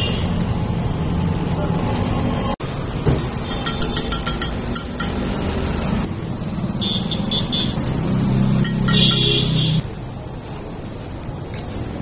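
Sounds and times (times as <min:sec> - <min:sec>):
street traffic: 0:00.0 - 0:12.0
light metallic clinks: 0:03.6 - 0:05.3.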